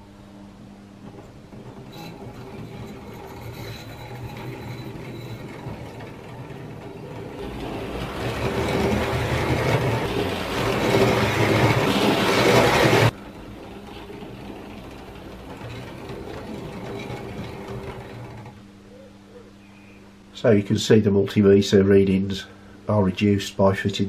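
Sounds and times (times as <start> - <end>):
model train motor running: 1.1 - 18.6.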